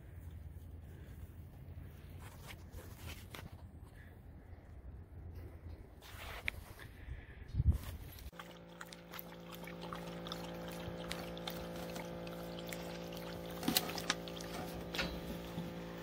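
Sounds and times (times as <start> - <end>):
steady hum: 8.2 - 16.0
dog licking: 8.3 - 14.8.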